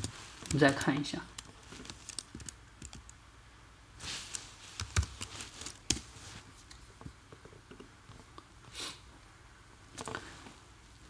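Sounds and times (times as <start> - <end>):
computer keyboard clicks: 0.0 - 3.2.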